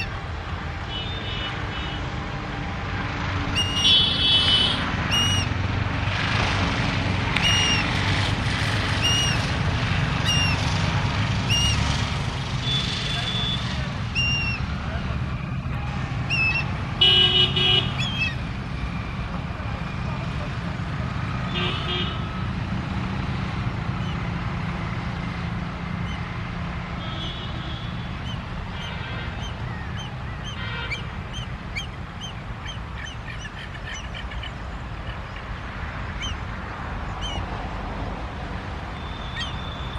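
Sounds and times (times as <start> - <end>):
hornbills calling: 3.5 - 5.6, 7.3 - 12.1, 12.7 - 14.7, 16.2 - 16.8, 17.8 - 18.5, 28.2 - 35.6, 36.2 - 36.4, 37.1 - 37.5, 39.2 - 39.7.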